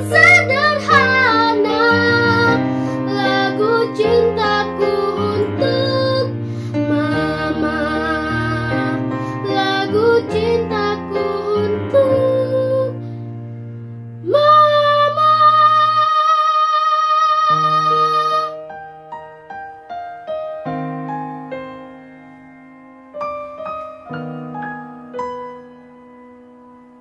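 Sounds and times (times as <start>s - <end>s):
girl singing slow song: 0.0s - 13.6s, 14.2s - 18.8s
grand piano accompaniment: 0.0s - 16.1s, 17.2s - 27.0s.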